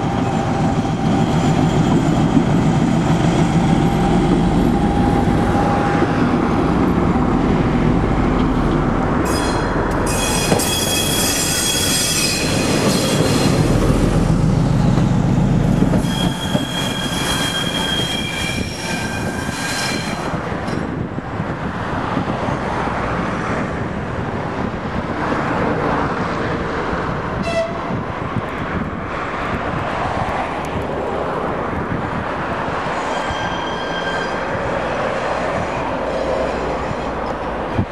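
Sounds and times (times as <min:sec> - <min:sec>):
diesel locomotive engine: 0:00.0 - 0:37.9
wheel squeal on track: 0:09.3 - 0:13.6, 0:15.8 - 0:20.4, 0:33.0 - 0:34.6.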